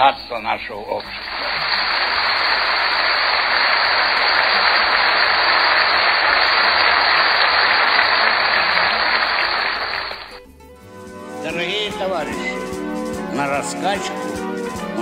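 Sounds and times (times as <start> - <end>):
audience applause: 0.9 - 10.4.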